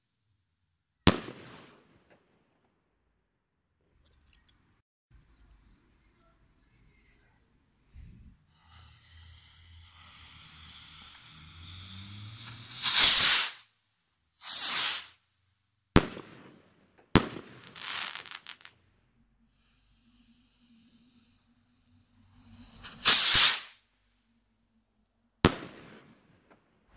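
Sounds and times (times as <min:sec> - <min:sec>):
firework bangs: 0:01.1 - 0:02.2, 0:08.6 - 0:13.6, 0:14.4 - 0:15.2, 0:16.0 - 0:18.7, 0:22.8 - 0:23.8, 0:25.4 - 0:26.6
firework rocket whooshing: 0:07.9 - 0:13.8, 0:14.4 - 0:15.2, 0:17.2 - 0:18.7, 0:19.6 - 0:23.9
firework fuse hissing: 0:07.9 - 0:15.3, 0:17.4 - 0:18.7, 0:19.5 - 0:23.9
firework crackling: 0:08.5 - 0:15.2, 0:17.2 - 0:18.8, 0:19.6 - 0:23.8.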